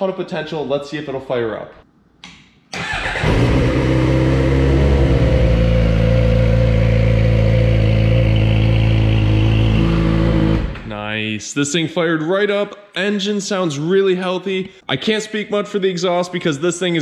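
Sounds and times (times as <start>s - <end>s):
motorcycle engine starting and idling: 2.8s - 8.0s.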